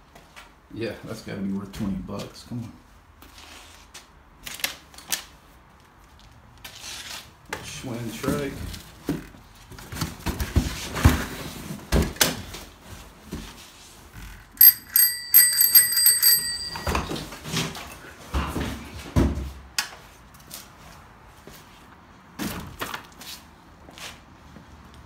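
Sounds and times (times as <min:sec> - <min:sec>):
bicycle bell ringing: 0:14.6 - 0:17.3
metal tricycle clattering: 0:14.6 - 0:17.4.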